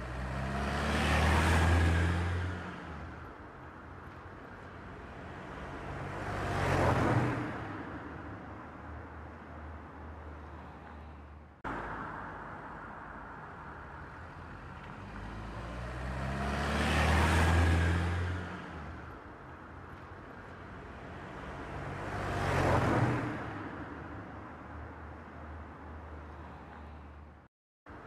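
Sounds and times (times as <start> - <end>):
car passing by: 0.0 - 3.2, 5.2 - 8.0, 11.7 - 19.1, 21.0 - 24.0.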